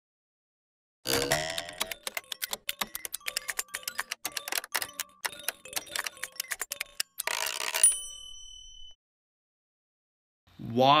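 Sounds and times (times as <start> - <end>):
typewriter keys clacking: 1.1 - 8.5.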